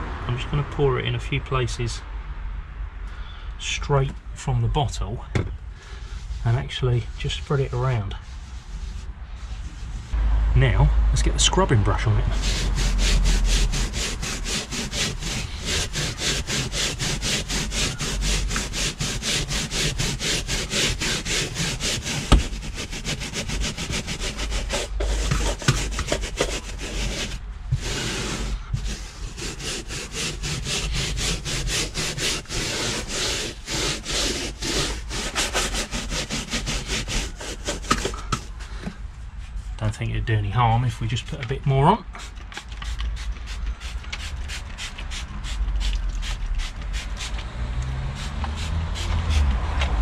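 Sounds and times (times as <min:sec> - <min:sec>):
brush scrubbing carpet: 0:12.3 - 0:38.6, 0:48.2 - 0:49.5.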